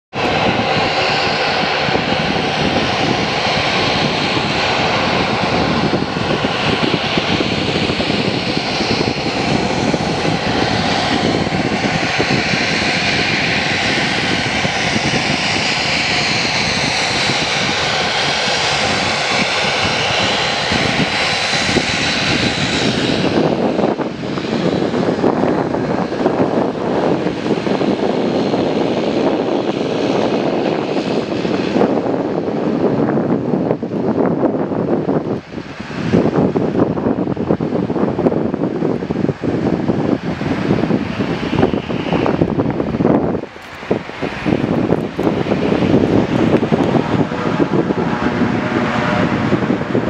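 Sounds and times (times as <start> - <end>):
turboprop engines running: 0.1 - 50.0
high whine: 36.0 - 50.0.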